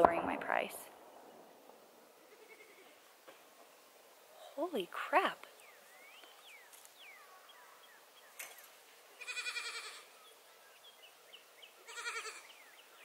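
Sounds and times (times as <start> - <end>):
goats bleating: 2.3 - 3.0, 9.2 - 10.1, 11.9 - 12.5
faint bird chirps: 5.4 - 13.0.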